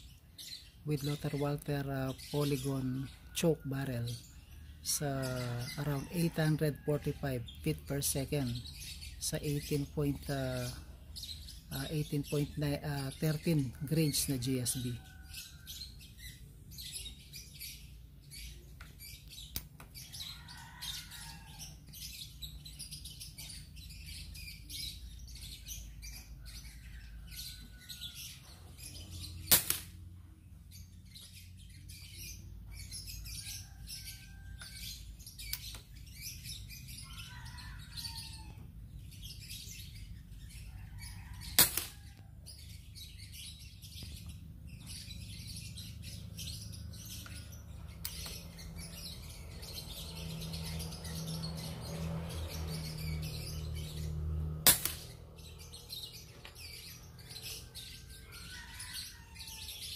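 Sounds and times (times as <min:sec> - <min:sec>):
small birds chirping: 0:00.0 - 0:59.9
airgun shots: 0:29.5 - 0:30.0, 0:54.6 - 0:55.1.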